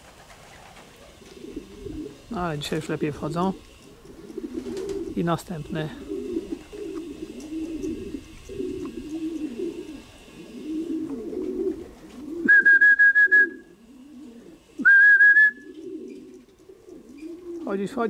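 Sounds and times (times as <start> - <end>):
pigeons cooing: 0.0 - 18.0
high whistle-like tone: 12.4 - 13.7, 14.8 - 15.7.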